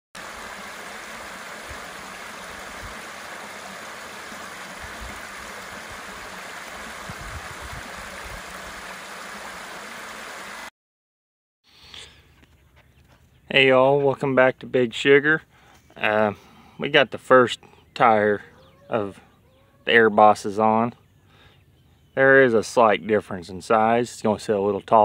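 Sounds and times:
creek water trickling over rocks: 0.2 - 10.7.

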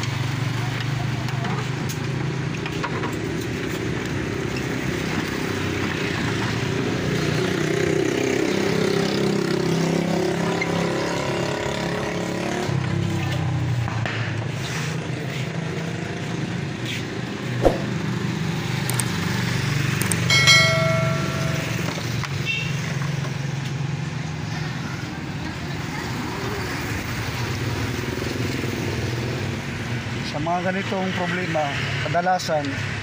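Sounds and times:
sharp click: 17.6 - 17.9
short ringing chime: 20.3 - 22.2.

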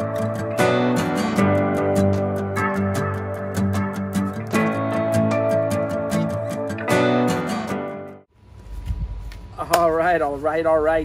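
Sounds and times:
strummed guitar music with beat: 0.0 - 8.3.

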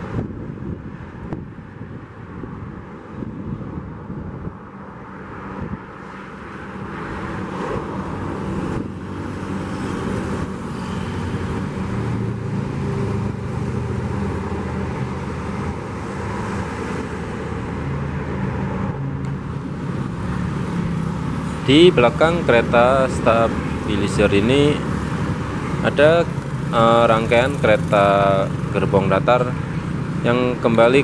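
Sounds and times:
diesel engines of rail machines: 6.0 - 30.8.

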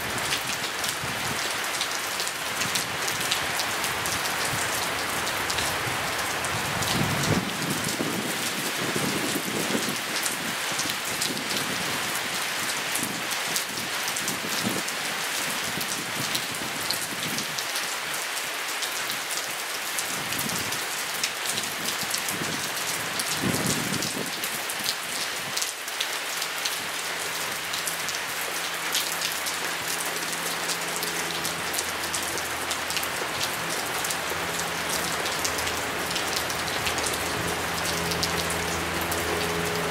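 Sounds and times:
rain falling on grass and path: 0.0 - 39.9
close raindrop hits: 26.7 - 39.9.

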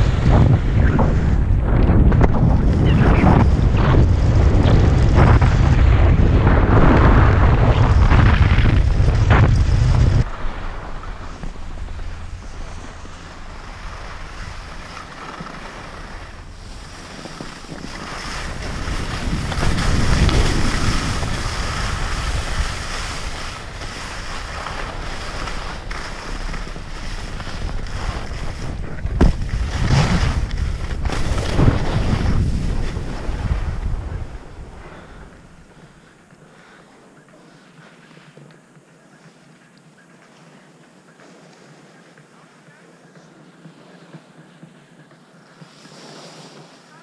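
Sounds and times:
wind buffeting microphone: 0.0 - 36.3
skis hissing over snow: 7.6 - 47.0.

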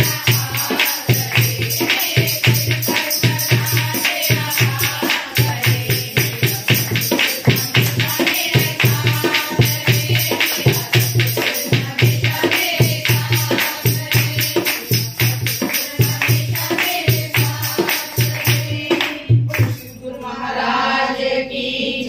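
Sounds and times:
drum beats: 0.0 - 19.8
women singing devotional song: 0.0 - 22.0
fast handclapping: 0.2 - 19.8.

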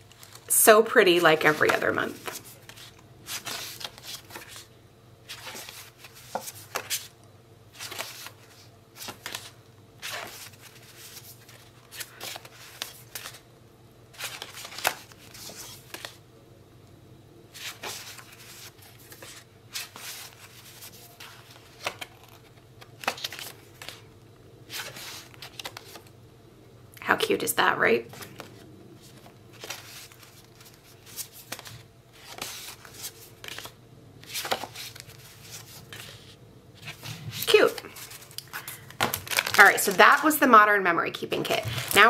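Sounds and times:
paper cards swishing: 1.4 - 4.7, 28.1 - 40.3.

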